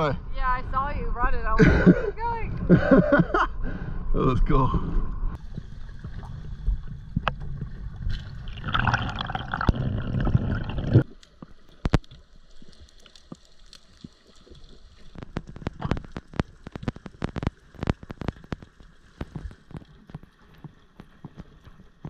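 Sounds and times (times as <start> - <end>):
water gurgling and rushing: 5.3 - 22.0
sharp underwater clicks: 8.1 - 22.0.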